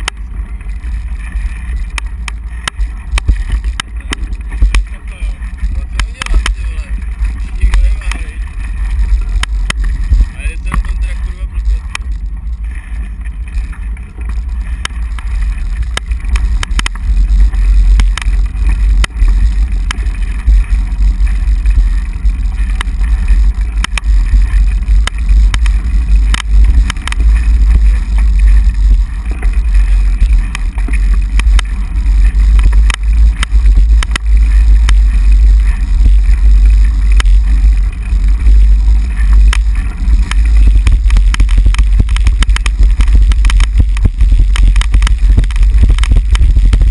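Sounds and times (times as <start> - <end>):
bicycle road rumble on wet pavement: 0.0 - 46.9
wind buffeting microphone: 0.0 - 46.9.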